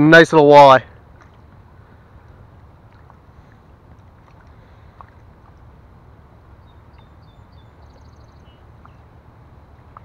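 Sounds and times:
wind and water noise on microphone: 0.0s - 10.0s
songbird chirping and trilling: 6.4s - 9.2s.

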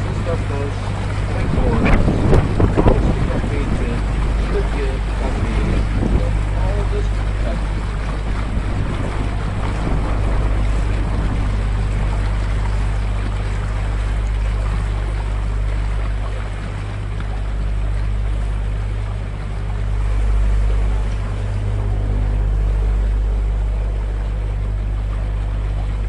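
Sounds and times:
boat motor humming: 0.0s - 26.0s
water rushing in boat wake: 0.0s - 26.0s.

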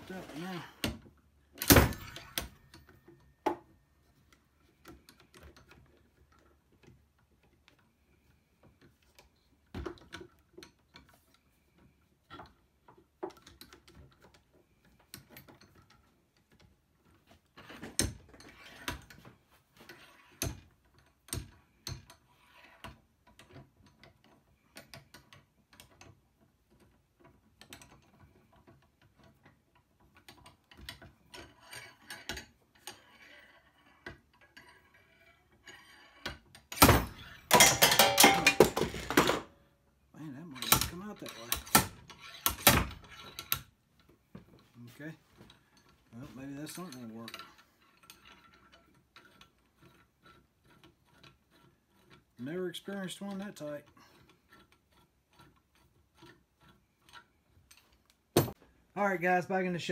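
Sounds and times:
metal clicks and knocks: 8.7s - 39.6s, 40.5s - 44.8s.

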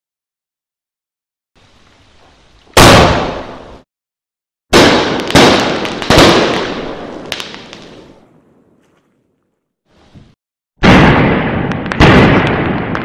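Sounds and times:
firework bangs: 2.8s - 3.8s, 4.7s - 8.7s, 10.8s - 13.0s.

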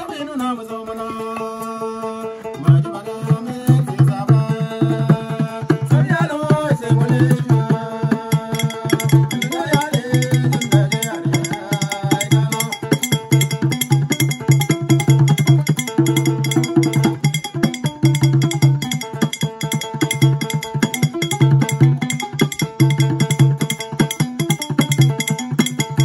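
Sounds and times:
man singing long notes: 0.0s - 13.6s
lute playing: 0.0s - 26.0s
djembe beat: 2.6s - 26.0s
metal hand percussion strokes: 8.1s - 26.0s.

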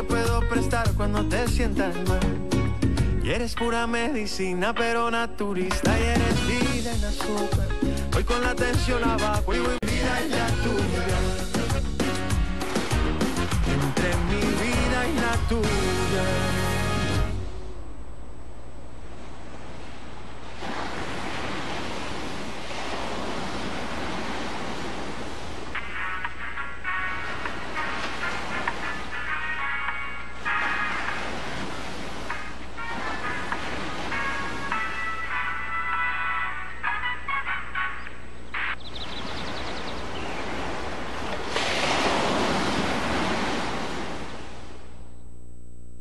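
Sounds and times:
music: 0.0s - 17.5s, 25.8s - 31.2s, 32.3s - 38.8s
song: 0.0s - 17.9s, 25.8s - 31.3s, 32.3s - 38.8s
waves breaking on beach: 10.8s - 15.5s, 19.0s - 36.6s, 38.9s - 44.9s.

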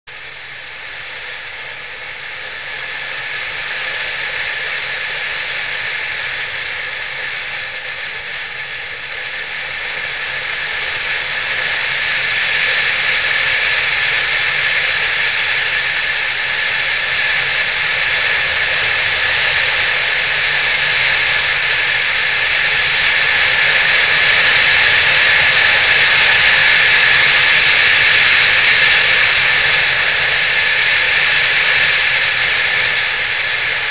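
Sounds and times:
wind rushing over microphone: 9.4s - 33.9s.

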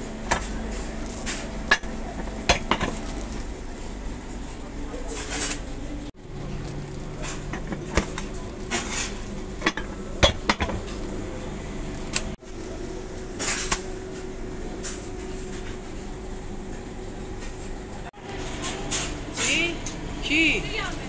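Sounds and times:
steady low hum: 0.0s - 21.0s
plastic sheet rustling: 2.0s - 3.9s
metal patty press knocking: 9.6s - 10.9s.

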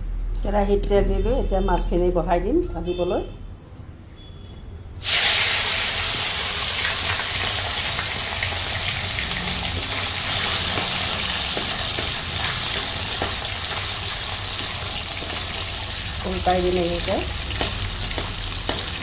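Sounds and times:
fish sizzling in hot oil: 5.0s - 19.0s.

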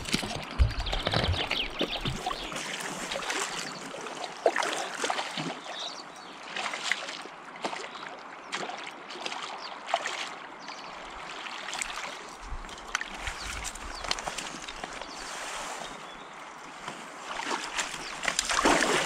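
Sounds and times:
fish splashing at the surface: 17.8s - 19.0s.

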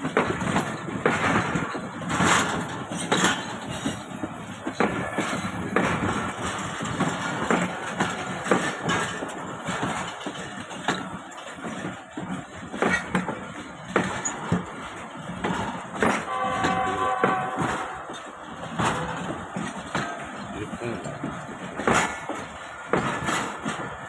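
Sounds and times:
train coaches rumbling past: 0.0s - 24.0s
wheels clacking on track: 0.0s - 24.0s
brief steady tone: 16.3s - 18.1s.

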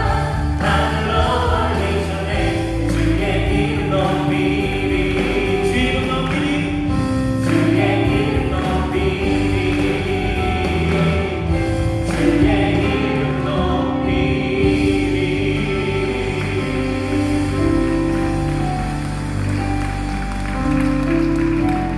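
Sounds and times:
women singing through microphones: 0.0s - 5.6s
amplified band accompaniment: 0.0s - 21.9s.

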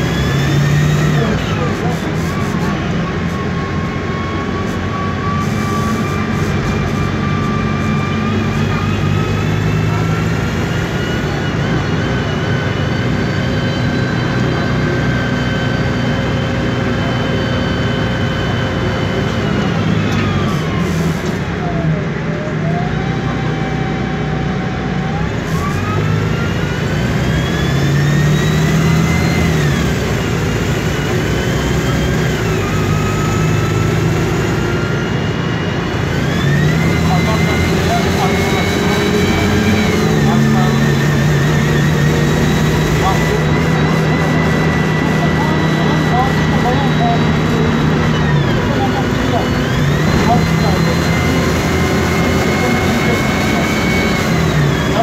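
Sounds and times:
bus gearbox whine: 0.0s - 21.9s
low engine hum: 0.0s - 55.0s.

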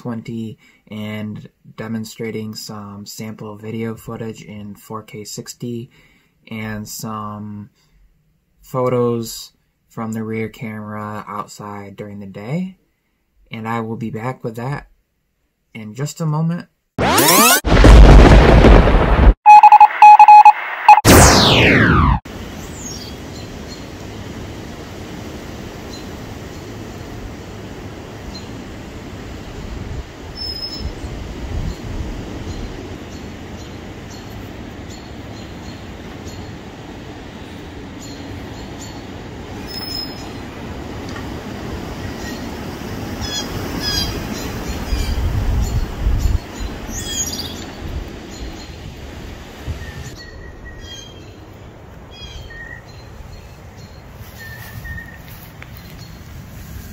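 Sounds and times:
falling-pitch whoosh effect: 17.0s - 18.3s, 19.5s - 22.2s
outdoor background noise: 20.5s - 56.9s.

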